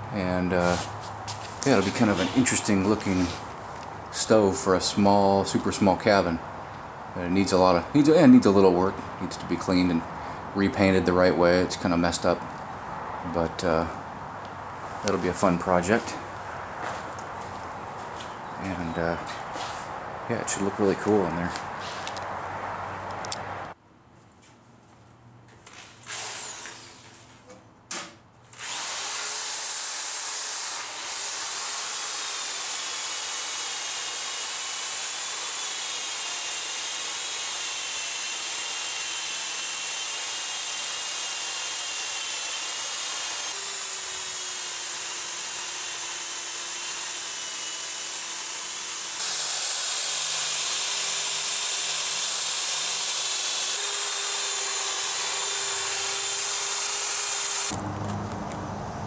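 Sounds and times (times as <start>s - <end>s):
drill with wire brush scouring steel: 0.6s - 3.5s, 26.1s - 27.2s, 28.6s - 57.8s.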